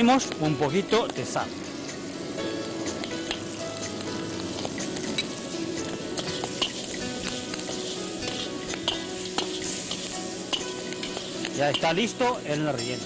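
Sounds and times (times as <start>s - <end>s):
food sizzling in a wok: 0.0s - 13.0s
metal ladle scraping wok: 4.6s - 12.4s
metal clicking against wok: 6.2s - 12.0s.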